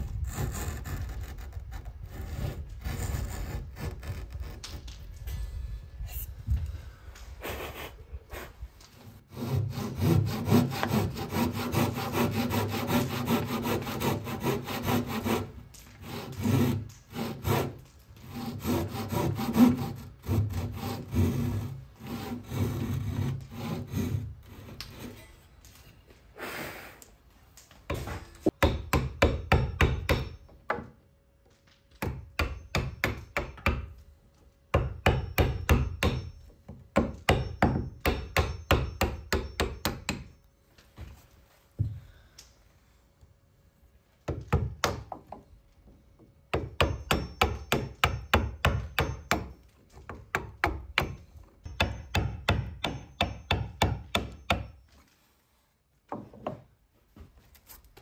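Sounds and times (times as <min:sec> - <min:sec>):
hand saw cutting wood: 0:00.0 - 0:04.8, 0:07.4 - 0:25.3.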